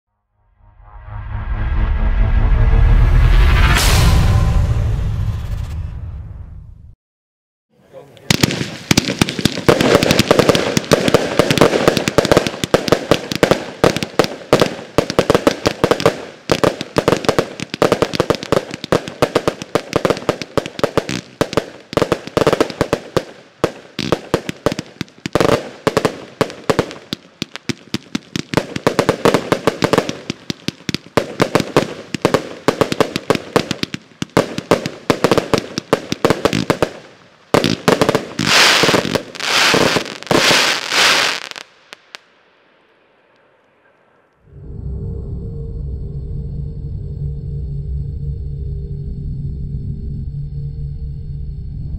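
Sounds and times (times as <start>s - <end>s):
firework crackling: 8.0s - 43.0s.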